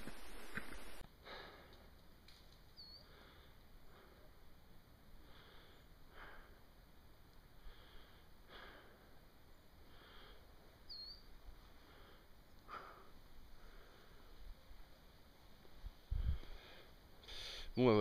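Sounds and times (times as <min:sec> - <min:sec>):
small bird chirping: 0:02.7 - 0:03.1, 0:10.8 - 0:11.4
faint even breathing: 0:03.0 - 0:06.8, 0:07.5 - 0:10.8, 0:11.6 - 0:14.6.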